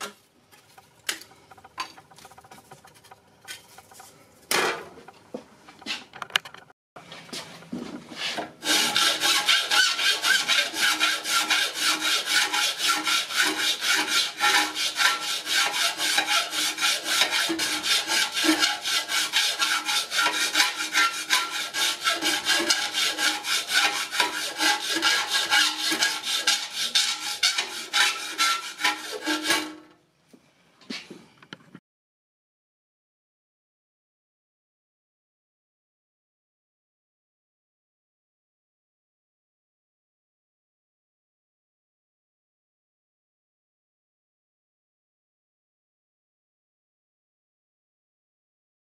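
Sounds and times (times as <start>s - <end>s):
hand file scraping metal: 0.6s - 4.4s, 8.2s - 29.9s.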